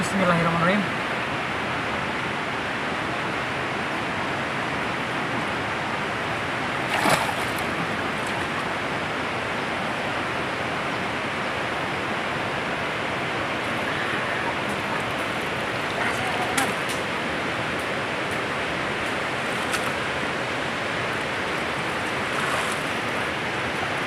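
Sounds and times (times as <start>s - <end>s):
river water rushing: 0.0s - 24.0s
water splash: 6.8s - 8.7s, 22.2s - 23.0s.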